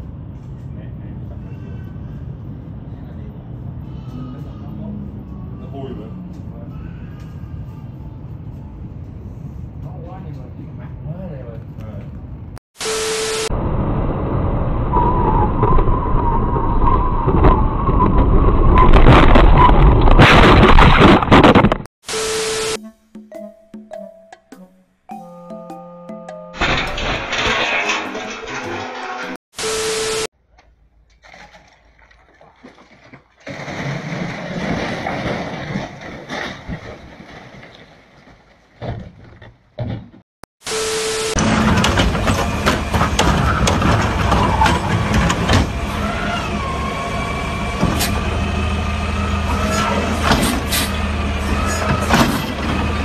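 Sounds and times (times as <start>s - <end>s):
car crash bangs: 26.6s - 29.4s.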